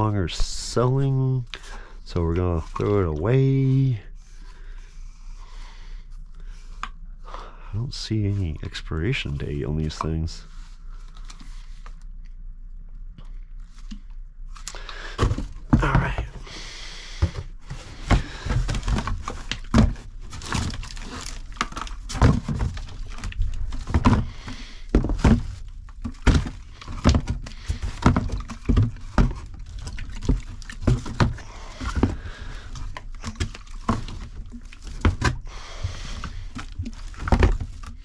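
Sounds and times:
objects thudding into cardboard box: 0:15.0 - 0:16.5, 0:17.1 - 0:38.0
liquid sloshing: 0:25.9 - 0:35.0.

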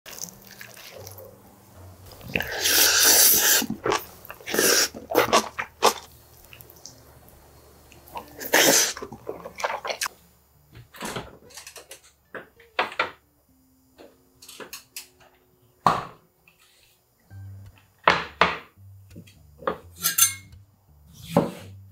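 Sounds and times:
bites and chewing: 0:00.1 - 0:01.4, 0:02.1 - 0:07.0, 0:07.9 - 0:10.1
spoon scraping metal bowl: 0:19.9 - 0:20.5.

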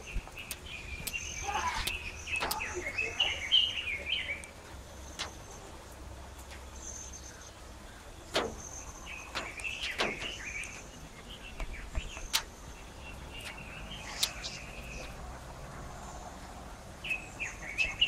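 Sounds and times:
sharp clicks: 0:00.0 - 0:01.2, 0:01.8 - 0:02.7, 0:13.4 - 0:15.0
birds chirping: 0:00.0 - 0:18.0
outdoor background rumble: 0:00.0 - 0:18.0.

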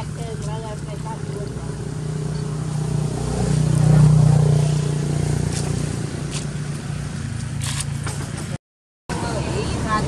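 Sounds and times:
vehicle engine running: 0:00.0 - 0:10.0.

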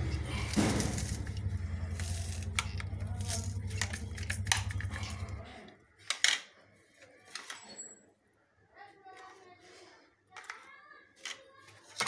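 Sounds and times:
steady low hum: 0:00.0 - 0:05.7
plastic utensil clicking and clattering: 0:00.4 - 0:05.2, 0:06.0 - 0:06.6.

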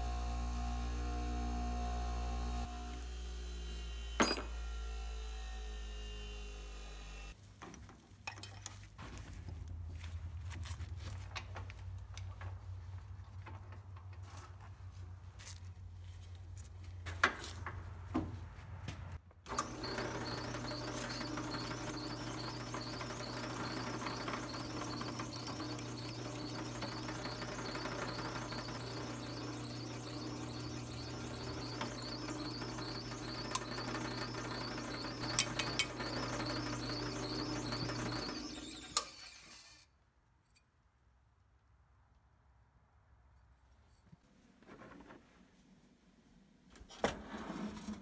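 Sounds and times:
drill press motor running: 0:00.0 - 0:07.3, 0:19.5 - 0:39.8.

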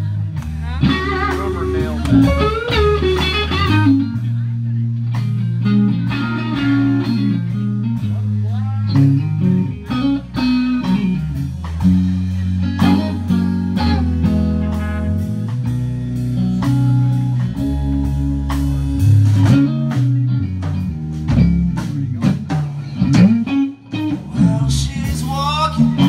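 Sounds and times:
bass guitar: 0:00.0 - 0:26.0
electric guitar lines: 0:00.0 - 0:26.0.

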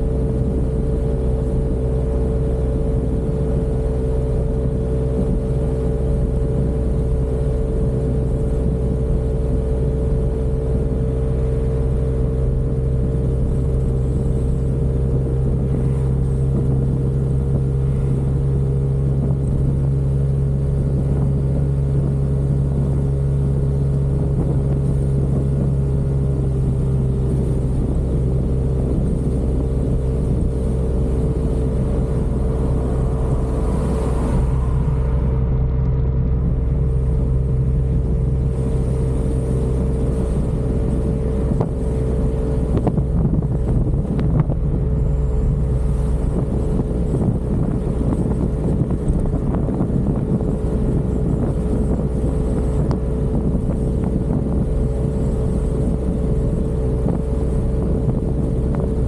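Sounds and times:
scooter engine droning: 0:24.0 - 0:59.0.

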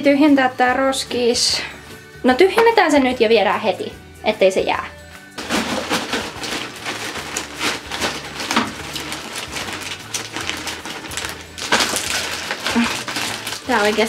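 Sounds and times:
plastic bag rustling and crinkling: 0:05.4 - 0:14.0.

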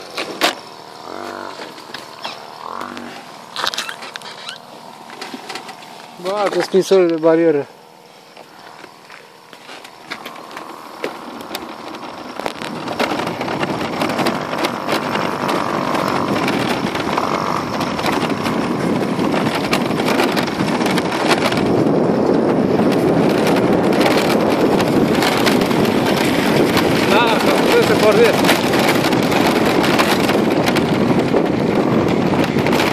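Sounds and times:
tyres crunching on gravel: 0:00.0 - 0:32.9
wind buffeting microphone: 0:08.9 - 0:32.9.

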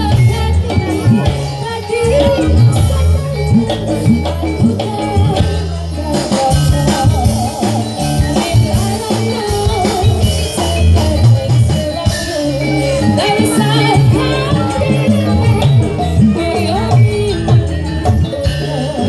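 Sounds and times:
bass line: 0:00.0 - 0:19.0
drums: 0:00.0 - 0:19.0
wavering melody: 0:06.8 - 0:19.0.

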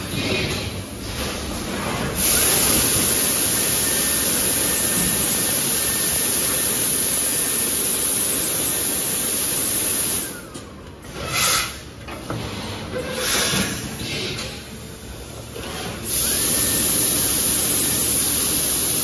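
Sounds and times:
loud hiss of rushing air: 0:02.2 - 0:10.4, 0:16.1 - 0:19.0.

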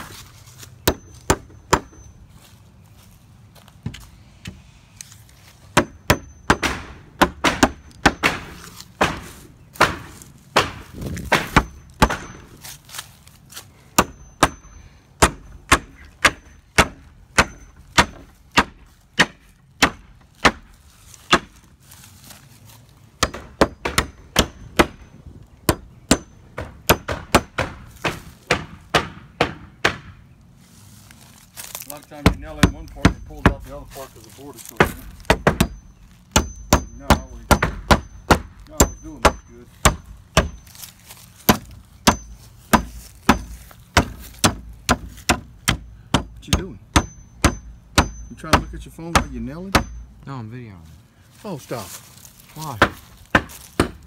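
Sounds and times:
hammer striking nails into wood: 0:00.8 - 0:02.1, 0:05.7 - 0:12.6, 0:14.0 - 0:20.7, 0:23.2 - 0:30.2, 0:32.2 - 0:33.6, 0:34.8 - 0:40.7, 0:41.5 - 0:50.0, 0:52.8 - 0:54.0.

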